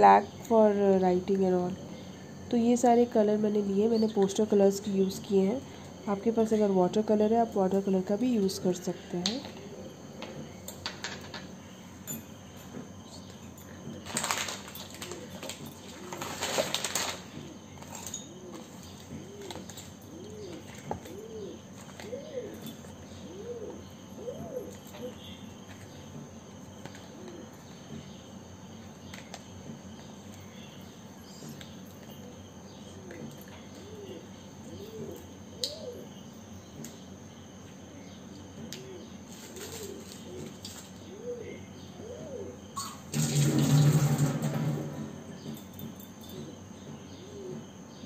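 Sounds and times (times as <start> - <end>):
pigeon cooing: 15.0 - 16.6, 18.3 - 25.4, 32.2 - 36.2, 38.6 - 43.1, 46.3 - 48.0.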